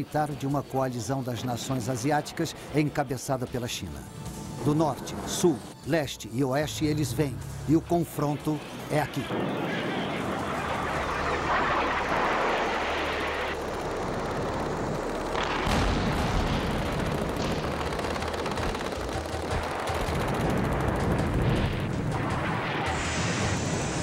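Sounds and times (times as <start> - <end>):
shell explosions: 15.2 - 23.7
gunfire: 15.3 - 23.1.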